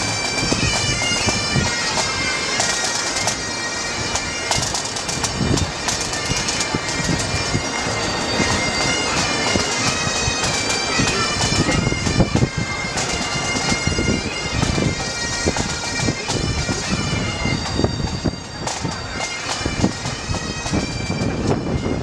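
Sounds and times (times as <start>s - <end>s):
reedy wind instrument: 0.0s - 22.0s
drum beats: 8.4s - 16.9s.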